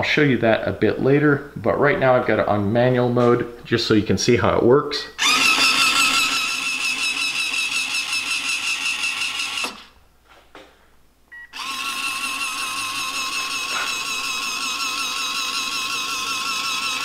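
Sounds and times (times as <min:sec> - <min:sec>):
gear motor whining: 0:05.2 - 0:09.9, 0:11.5 - 0:17.0.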